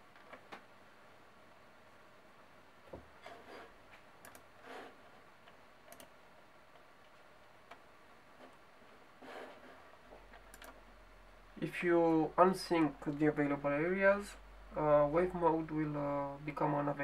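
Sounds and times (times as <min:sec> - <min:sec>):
computer mouse clicks: 0:04.2 - 0:04.5, 0:05.5 - 0:06.1, 0:10.3 - 0:10.8.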